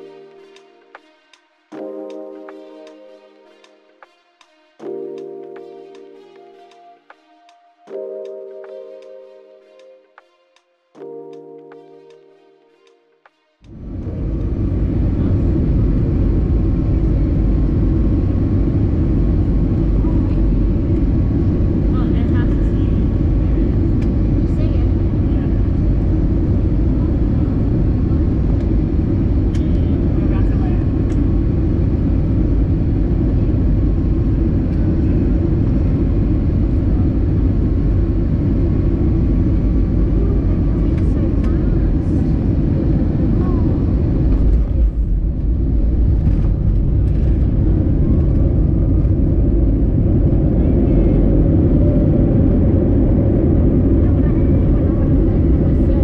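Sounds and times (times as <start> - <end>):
airplane cabin low roar: 13.7 - 56.0.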